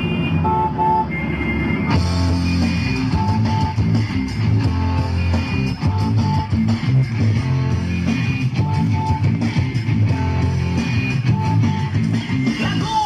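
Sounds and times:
rock music led by guitar: 1.9s - 13.0s.

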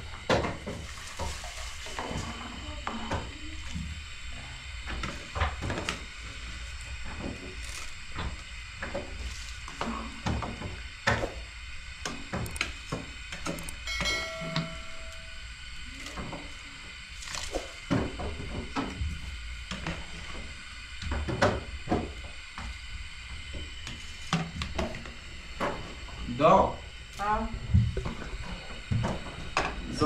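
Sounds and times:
brief ringing tone: 13.8s - 15.5s.

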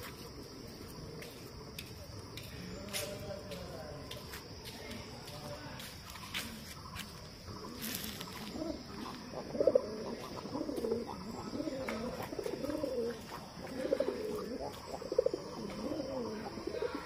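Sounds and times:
pigeons cooing: 6.9s - 17.0s.

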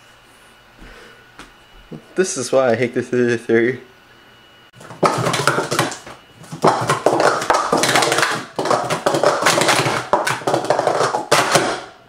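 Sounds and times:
plastic cups clacking: 4.8s - 12.0s.

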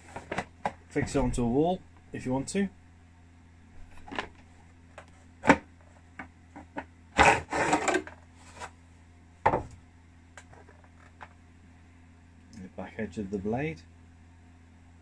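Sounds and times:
faint low hum: 0.0s - 15.0s
cover scraping off blade: 7.2s - 8.7s.

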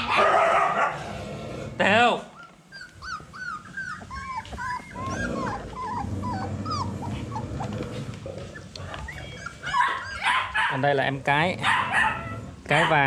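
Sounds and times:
puppies whimpering: 2.3s - 10.8s.

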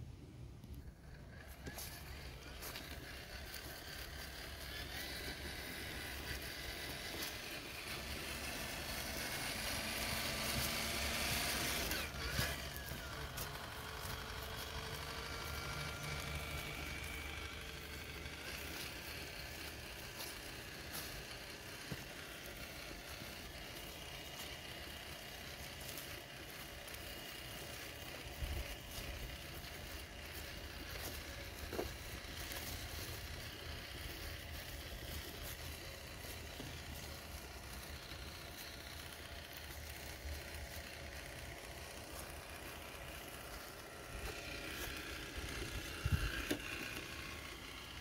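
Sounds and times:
rc car motor whirring: 0.0s - 48.0s.

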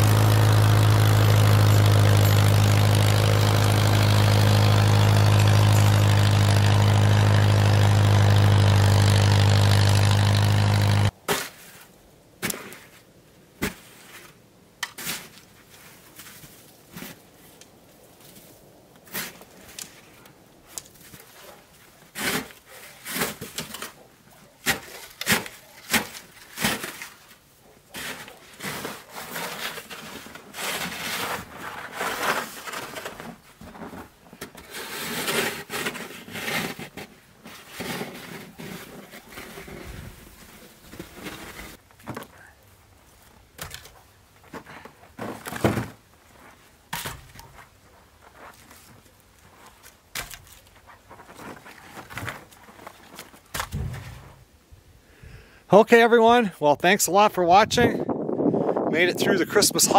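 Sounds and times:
snow shovel scraping snow: 0.0s - 13.0s, 22.1s - 23.6s, 28.0s - 41.8s.

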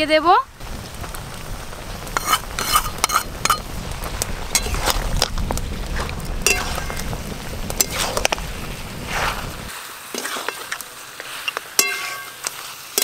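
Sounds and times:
low rumble: 0.0s - 9.7s
meat sizzling in oil: 0.5s - 13.0s
metal spatula scraping a pan: 2.2s - 3.6s, 4.5s - 5.0s, 6.4s - 7.0s, 7.8s - 8.4s, 10.1s - 13.0s.

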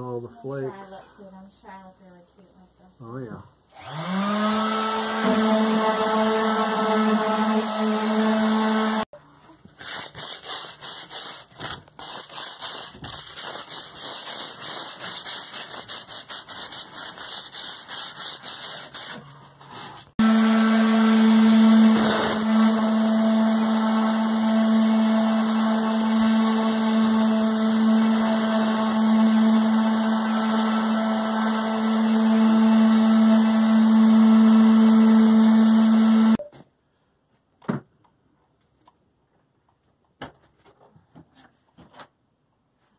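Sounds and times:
electric sander humming: 3.8s - 9.1s, 20.2s - 36.4s
rubbing and clicking: 9.7s - 20.1s.

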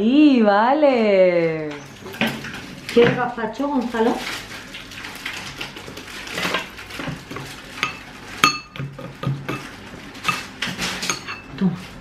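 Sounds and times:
spoon clinking glass bowl: 7.8s - 8.9s, 11.0s - 11.5s.

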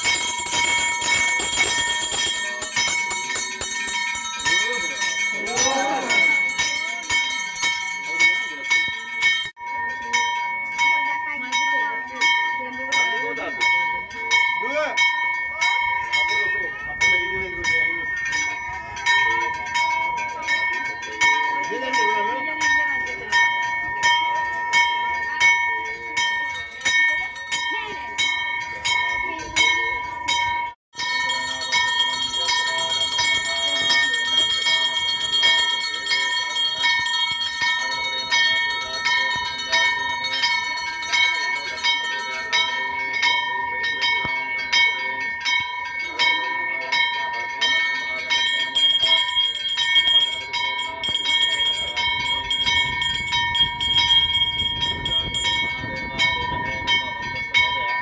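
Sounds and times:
brass hand bell ringing: 0.0s - 58.0s
crowd voices: 0.0s - 58.0s.

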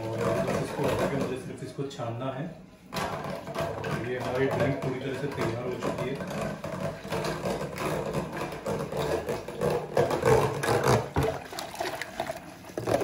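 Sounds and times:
liquid pouring through a strainer: 3.3s - 13.0s.

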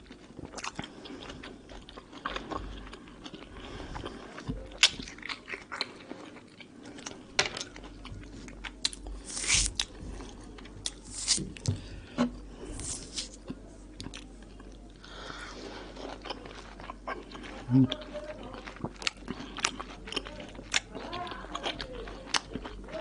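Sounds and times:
mandarin segments tearing apart: 8.9s - 9.9s, 10.9s - 11.7s, 12.7s - 13.4s.

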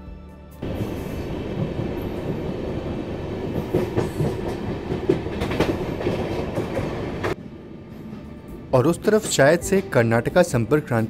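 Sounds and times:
train wheels rumbling: 0.6s - 10.0s
sharp clacks over rail joints: 3.6s - 7.4s.

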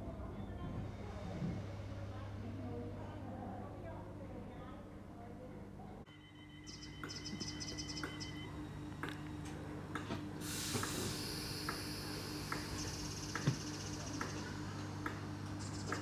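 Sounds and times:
train equipment humming: 0.0s - 16.0s
loud air hiss: 10.4s - 13.3s.

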